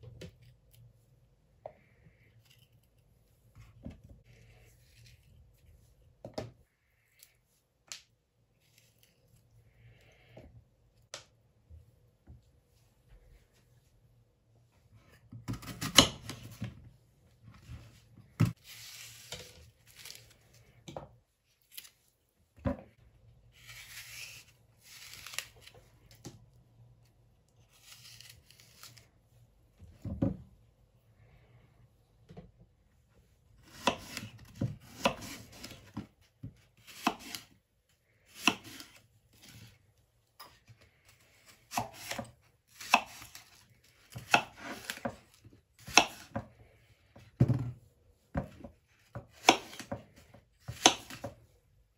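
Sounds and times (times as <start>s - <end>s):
knife slicing apple: 23.6s - 25.7s, 27.7s - 29.1s, 33.6s - 36.0s, 36.8s - 37.5s, 38.3s - 39.7s, 41.5s - 46.5s, 48.4s - 51.4s.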